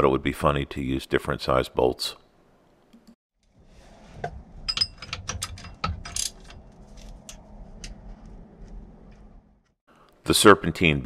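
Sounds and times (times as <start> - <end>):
low handling rumble: 3.6 - 9.7.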